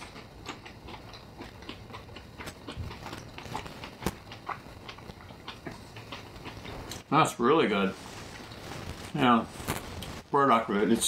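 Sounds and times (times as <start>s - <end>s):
chewing smacks and clicks: 0.0s - 7.0s.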